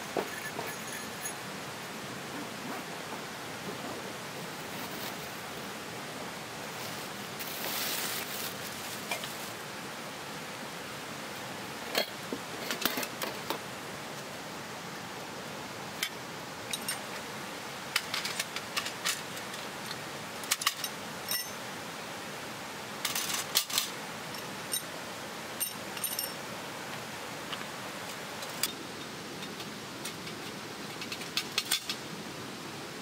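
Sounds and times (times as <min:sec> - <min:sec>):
background hiss: 0:00.0 - 0:33.0
metal plates clinking: 0:00.2 - 0:01.4
cloth rustling: 0:06.7 - 0:09.6.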